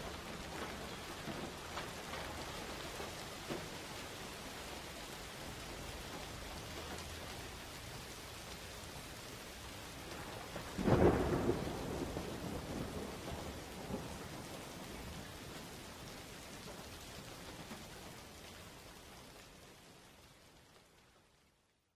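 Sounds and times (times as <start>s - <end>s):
thunderclap rumbling: 0.0s - 4.3s, 10.0s - 16.9s
rain hissing: 0.0s - 21.7s.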